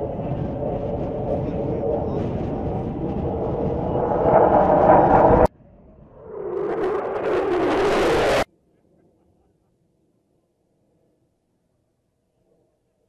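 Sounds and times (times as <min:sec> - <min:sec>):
jet noise rushing: 0:00.0 - 0:08.5.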